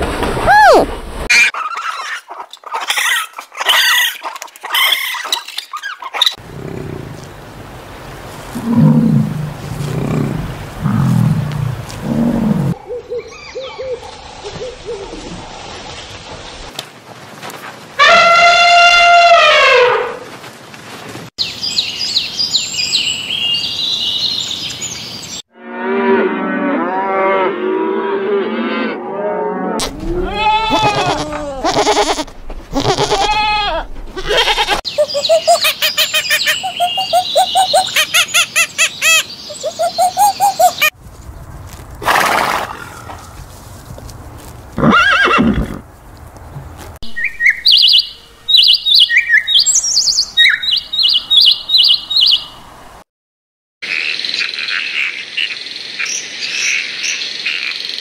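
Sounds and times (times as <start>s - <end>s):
elephant trumpeting: 29.8s - 34.8s
goats bleating: 29.8s - 34.8s
horse whinnying: 29.8s - 34.8s, 44.8s - 45.8s.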